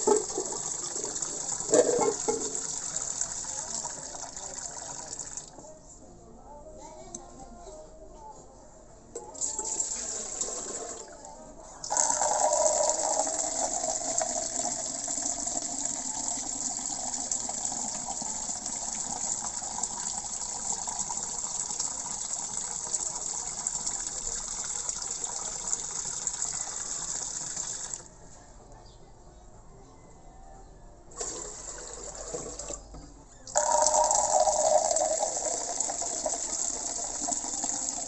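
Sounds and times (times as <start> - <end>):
tap water gushing into pot: 0.0 - 5.5, 11.9 - 28.0, 31.2 - 32.8, 33.5 - 38.0.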